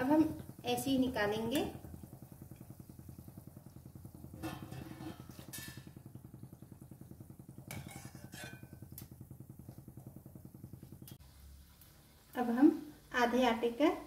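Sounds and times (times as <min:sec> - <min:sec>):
steady low hum: 0:00.0 - 0:14.0
metal spoon clinking on pan: 0:07.7 - 0:08.9.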